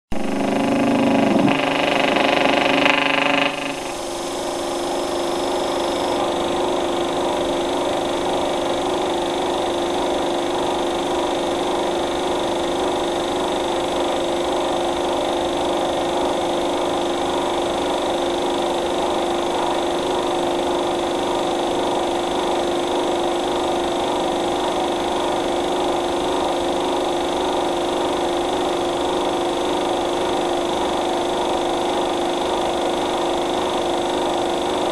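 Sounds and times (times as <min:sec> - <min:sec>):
loud pitched tone: 0:00.1 - 0:08.9
mechanical drone with hum: 0:00.1 - 0:34.9.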